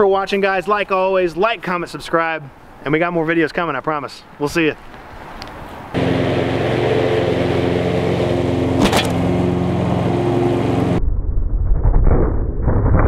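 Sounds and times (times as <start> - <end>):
mower engine running: 6.0 - 11.0
sharp click: 8.8 - 9.2.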